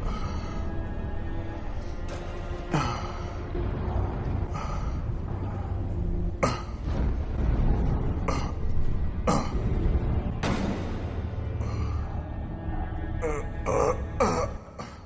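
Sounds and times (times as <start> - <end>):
low steady drone: 0.0 - 15.0
man gasping and groaning in pain: 11.6 - 15.0.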